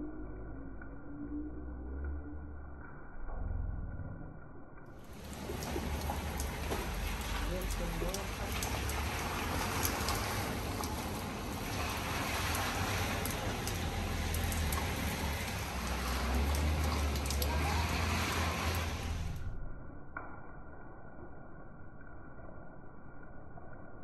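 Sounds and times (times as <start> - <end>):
low rumble: 0.0 - 24.0
drops ticking: 4.8 - 19.4
steady rain falling: 4.9 - 20.9.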